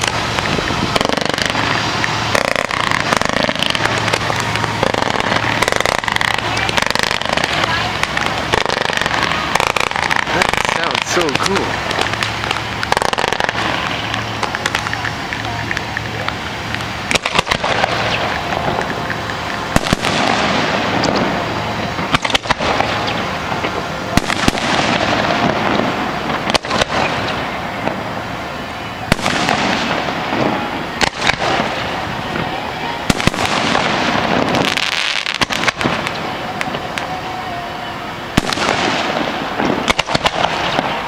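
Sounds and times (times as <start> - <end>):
firework shells banging: 0.0 - 28.1, 38.4 - 41.0
firework crackling: 0.0 - 41.0.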